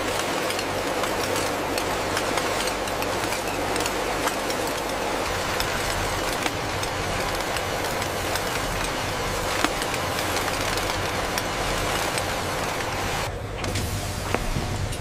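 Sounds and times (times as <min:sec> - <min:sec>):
machinery hum: 0:00.0 - 0:15.0.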